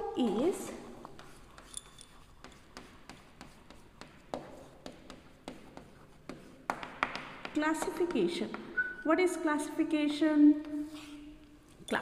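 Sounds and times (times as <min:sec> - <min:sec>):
chalk tapping and scratching on board: 0:00.3 - 0:08.8, 0:10.5 - 0:11.2.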